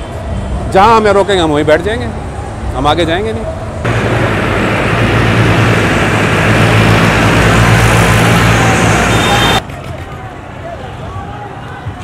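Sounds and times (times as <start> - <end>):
road noise: 0.0 - 12.0
tractor diesel engine passing: 3.9 - 9.6.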